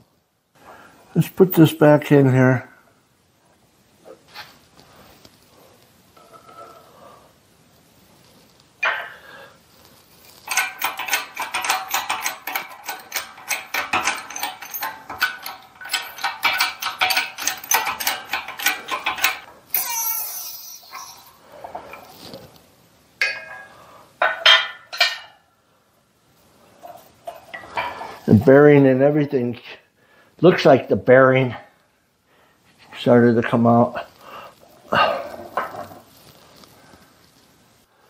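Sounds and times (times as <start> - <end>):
rapid metallic clicking: 10.4 - 19.5
sharp metal clinks: 10.5 - 21.4.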